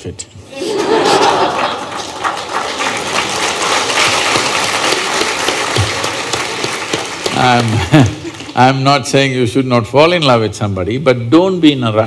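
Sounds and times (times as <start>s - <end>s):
audience applauding: 0.7s - 8.8s.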